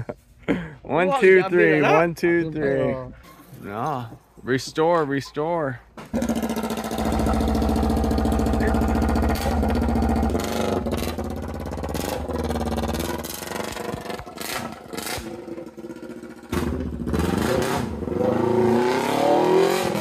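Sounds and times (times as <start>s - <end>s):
motorcycle engine revving: 6.1s - 20.0s
louder engine rising in pitch: 6.2s - 20.0s.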